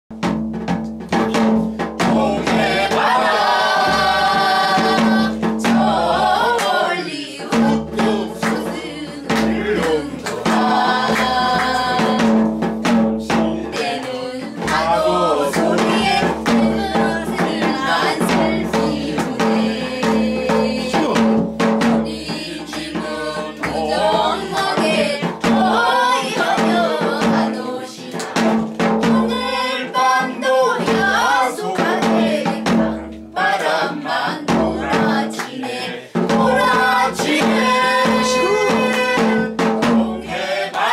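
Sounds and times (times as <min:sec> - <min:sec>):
group of people singing: 0:01.2 - 0:40.9
hand claps: 0:06.6 - 0:06.8, 0:09.3 - 0:12.4, 0:13.8 - 0:14.8, 0:28.1 - 0:28.8, 0:35.4 - 0:35.7.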